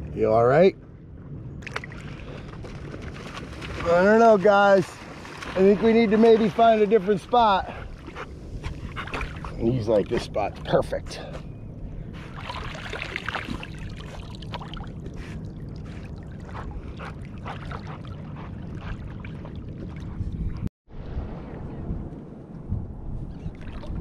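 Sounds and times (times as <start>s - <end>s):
low rumble of water and wind: 0.0s - 24.0s
light water splashes: 1.6s - 10.5s, 12.3s - 20.2s
water sloshing and lapping: 1.6s - 10.8s, 12.1s - 20.7s, 23.4s - 24.0s.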